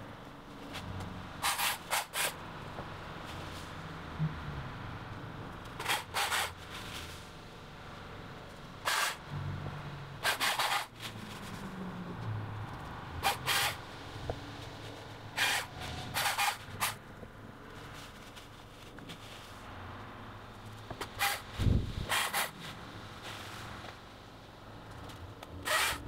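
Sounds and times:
chainsaw cutting leafy branches: 5.8 - 7.3, 8.8 - 9.2, 10.2 - 11.6, 25.6 - 26.0.

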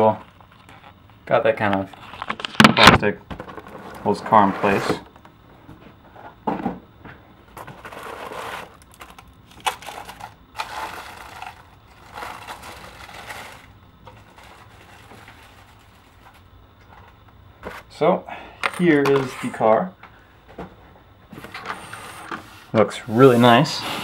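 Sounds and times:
plastic packaging crinkling: 7.7 - 16.5.

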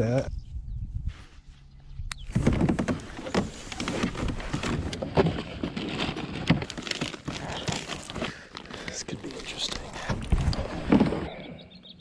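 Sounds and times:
plastic boxes clacking: 2.3 - 11.3
gear bags rustling: 2.4 - 11.3.

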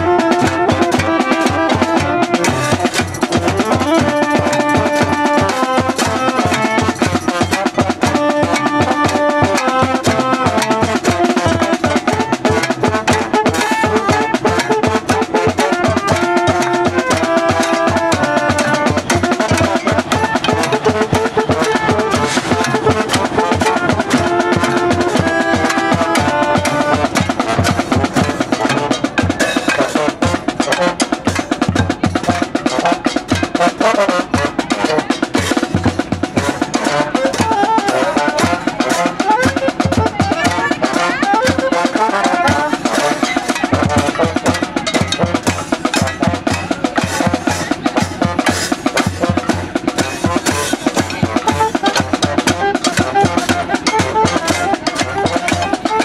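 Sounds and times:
drums beating fast rhythm: 0.0 - 56.0
voices: 0.0 - 56.0.

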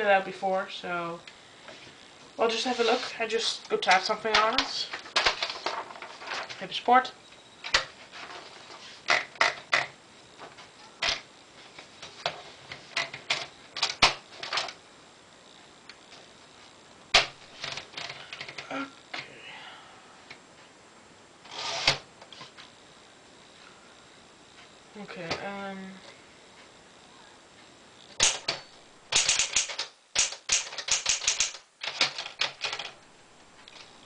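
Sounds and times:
rustling paper clatter: 5.0 - 6.6
typewriter clicks and knocks: 28.2 - 33.0.

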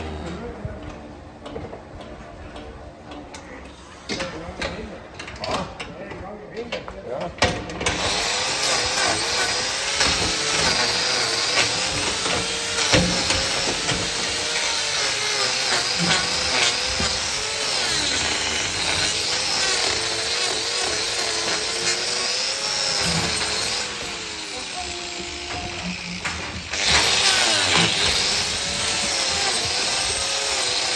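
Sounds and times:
angle grinder grinding hoof: 7.8 - 30.9.

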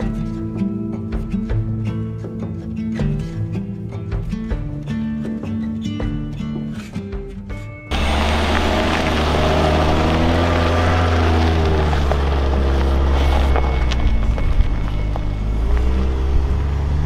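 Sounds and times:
engine droning under load: 7.9 - 17.0.

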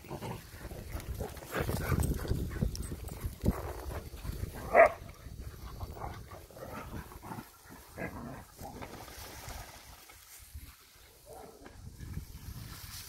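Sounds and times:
dog barking: 4.7 - 5.0, 11.2 - 11.6.

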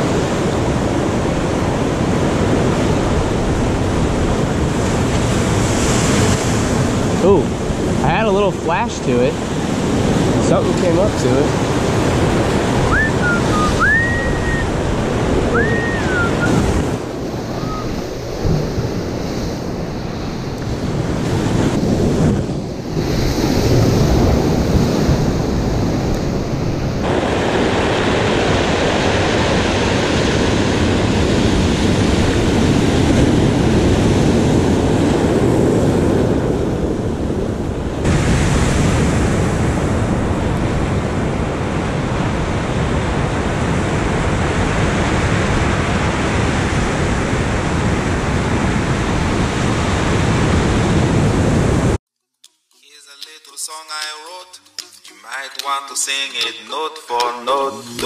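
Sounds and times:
surf breaking over rocks: 0.0 - 52.0
wind buffeting microphone: 0.0 - 52.0
short high chirps: 12.9 - 14.7, 17.5 - 18.0.

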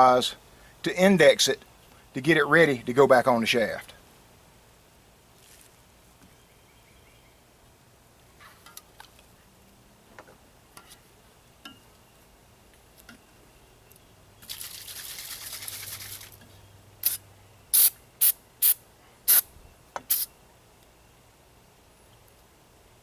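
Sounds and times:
aerosol can spraying: 17.8 - 19.4, 20.1 - 20.3.

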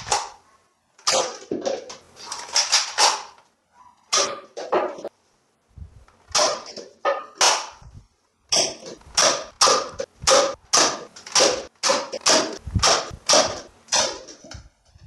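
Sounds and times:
toy dart blaster firing: 8.5 - 14.3.

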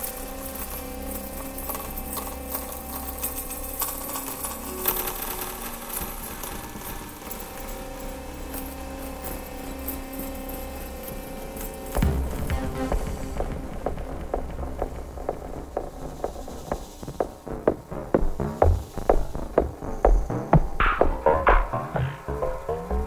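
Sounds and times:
mechanical rattles and clicks: 0.0 - 20.9
low electronic drone: 8.1 - 23.0
steady held tones: 11.9 - 23.0.

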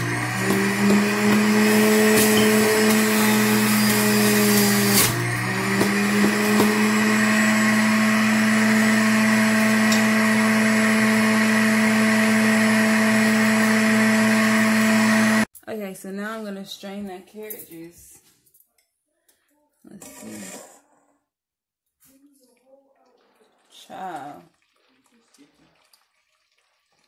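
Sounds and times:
juicer motor humming: 0.0 - 15.5.

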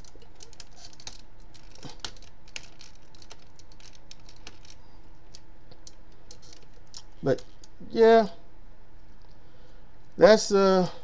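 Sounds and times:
clicks of plastic toy parts: 0.0 - 7.8.

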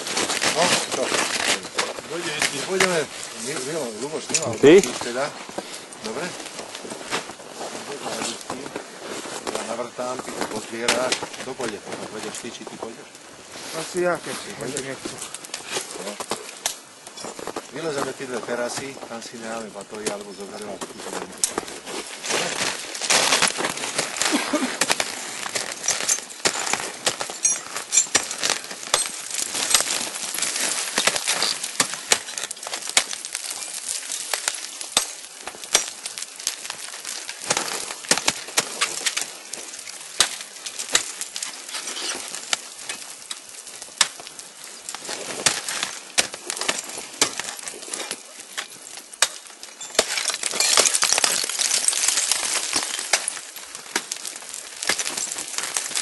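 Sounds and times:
ice axes striking ice: 10.4 - 12.4, 21.3 - 56.0
ice chips clinking: 44.9 - 56.0.

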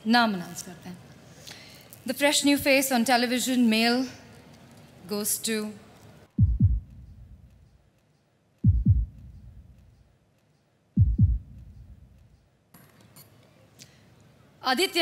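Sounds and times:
deep heartbeat-like thumps: 6.4 - 7.7, 8.6 - 10.0, 11.0 - 12.4.

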